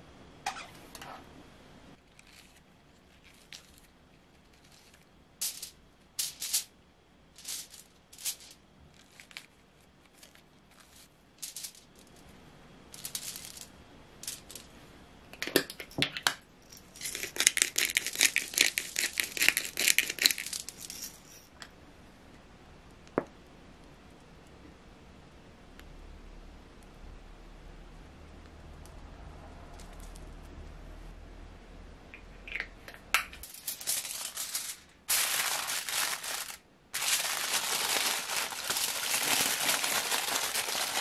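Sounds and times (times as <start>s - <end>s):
pepper rattling onto mushrooms: 16.8s - 21.2s, 33.4s - 41.0s
mushrooms tearing and rustling: 34.2s - 41.0s.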